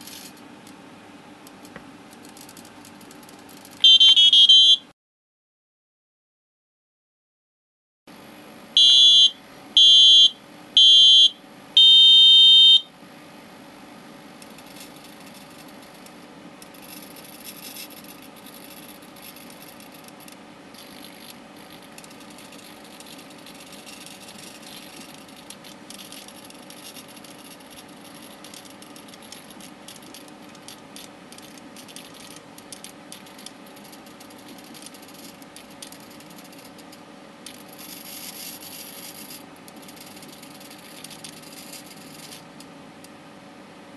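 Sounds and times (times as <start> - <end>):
electronic beeps: 3.8 - 4.8
steady low hum: 8.1 - 43.9.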